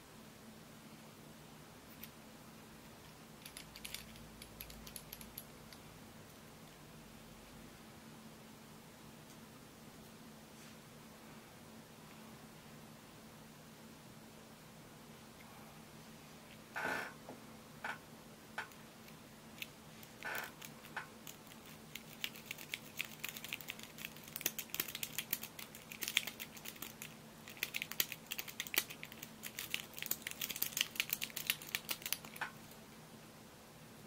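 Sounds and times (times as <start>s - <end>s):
lock picks clicking in a lock: 3.4s - 5.5s.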